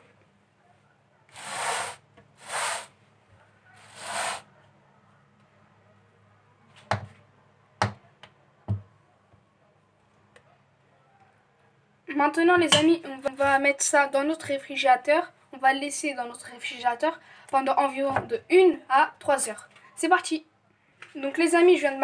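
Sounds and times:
spatula swishing in metal pan: 3.8s - 4.5s.

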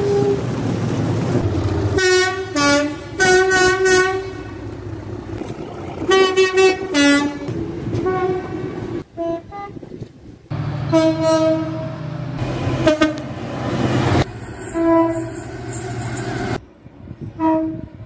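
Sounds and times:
locomotive two-tone horn: 0.0s - 0.6s, 2.0s - 4.6s, 6.1s - 9.8s, 10.6s - 13.4s, 14.4s - 16.4s, 17.4s - 18.0s
train running: 0.0s - 18.0s.

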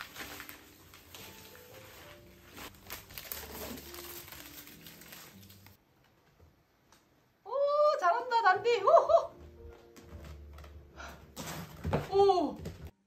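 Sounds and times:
paper and cardboard crinkling: 0.0s - 5.8s, 9.6s - 12.8s.

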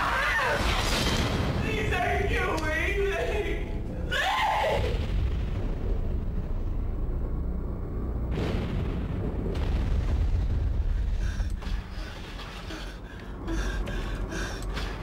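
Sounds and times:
booming hits: 0.6s - 2.4s, 4.8s - 12.3s
deep steady rumble: 1.3s - 15.0s.

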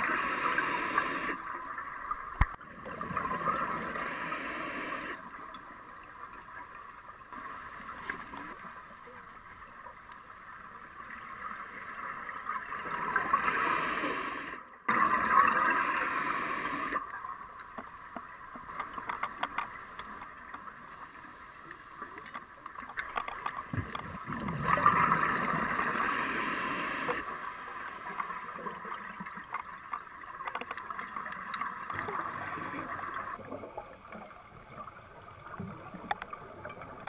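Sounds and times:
underwater bubbles rushing: 0.0s - 5.6s, 23.0s - 37.0s.

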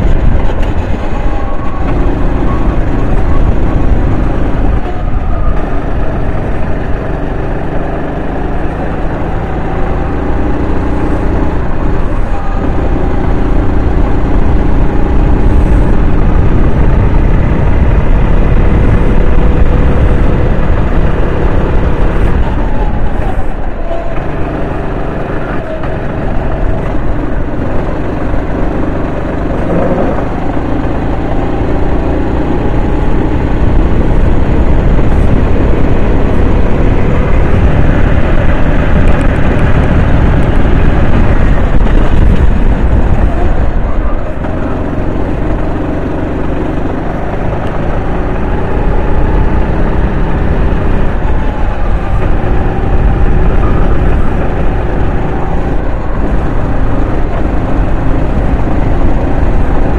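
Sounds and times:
kart engine revving: 0.0s - 59.9s.

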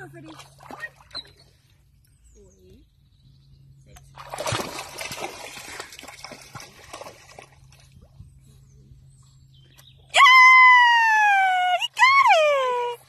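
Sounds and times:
dog splashing in a pond: 0.0s - 1.8s, 4.0s - 9.2s
water sloshing and trickling: 0.0s - 2.1s, 3.9s - 8.7s.

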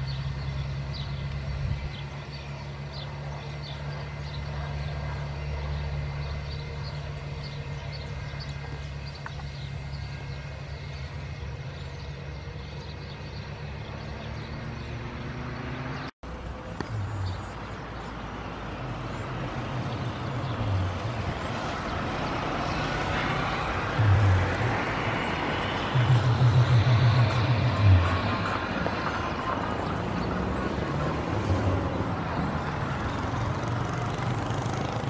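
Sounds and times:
jet engines taxiing: 16.3s - 35.0s.

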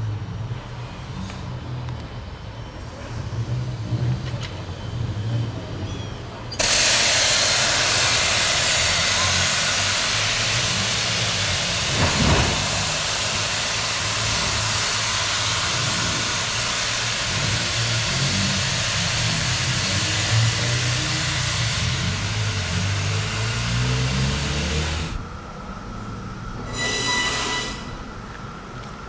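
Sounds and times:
steam hissing: 6.6s - 25.2s, 26.6s - 28.1s.

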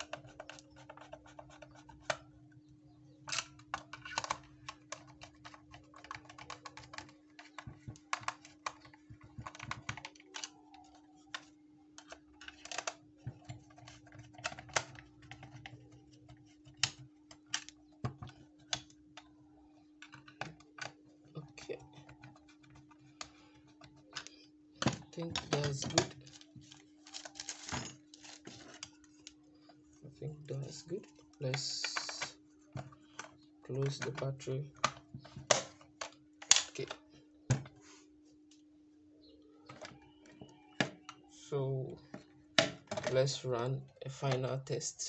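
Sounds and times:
plastic radio case clicking: 3.3s - 19.3s.

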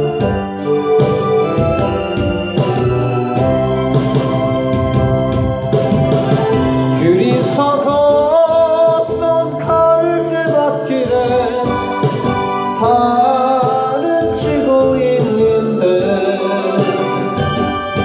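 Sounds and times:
keyboard and organ backing track: 0.0s - 18.0s
man singing into microphone: 6.8s - 17.5s.

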